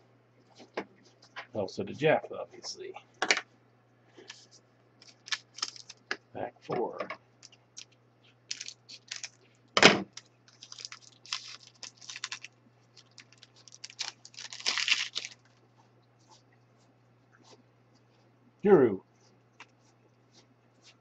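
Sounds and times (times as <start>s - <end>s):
scissors snipping foil pack: 5.0s - 6.0s, 8.5s - 9.4s, 10.1s - 15.4s
wrapper crinkling and rustling: 5.0s - 6.1s, 7.4s - 15.6s.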